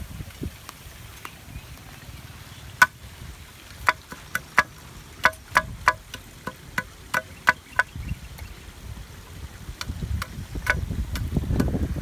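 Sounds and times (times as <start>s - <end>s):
machete chopping stick on log: 3.8s - 7.9s, 9.8s - 11.8s.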